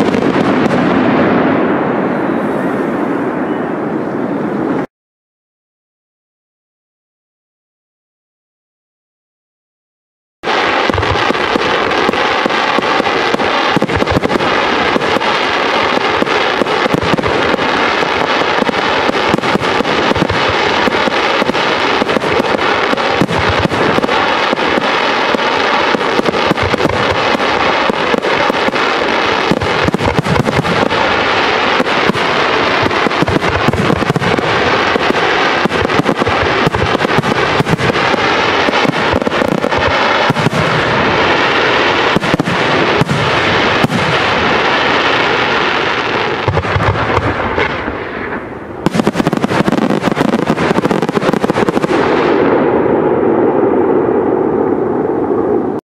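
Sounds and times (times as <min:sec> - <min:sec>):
fireworks crackling and banging: 0:00.0 - 0:03.6, 0:10.4 - 0:55.8.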